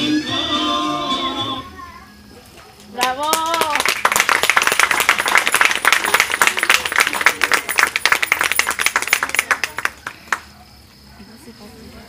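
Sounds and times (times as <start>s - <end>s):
people applauding: 3.0s - 10.6s.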